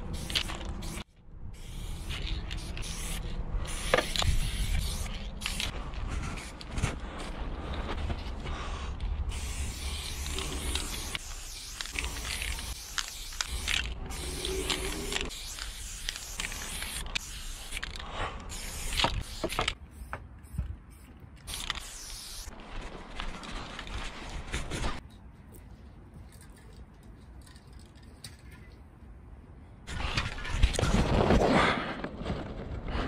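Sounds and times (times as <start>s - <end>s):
spray paint hissing: 0.0s - 7.3s, 9.2s - 22.5s
spray cans clicking and rattling: 1.7s - 5.7s, 9.3s - 20.1s, 21.4s - 22.4s.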